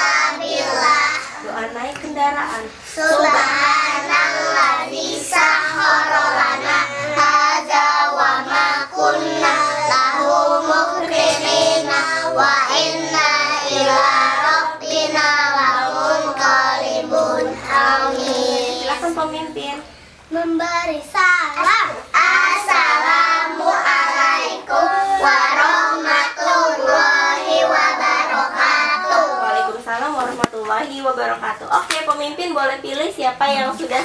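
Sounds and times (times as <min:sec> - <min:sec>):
children singing in unison: 0:00.0 - 0:01.4, 0:02.9 - 0:18.9, 0:22.1 - 0:29.8.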